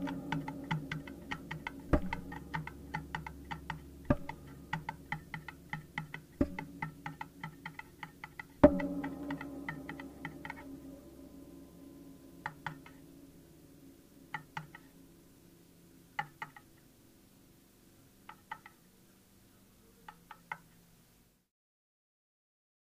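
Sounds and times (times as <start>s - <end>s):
low drone: 0.0s - 16.0s.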